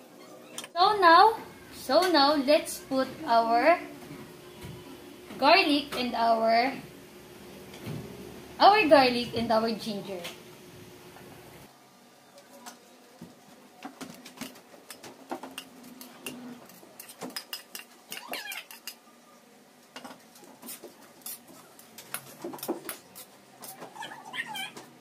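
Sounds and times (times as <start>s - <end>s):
utensils clinking and scraping wok: 14.9s - 19.0s.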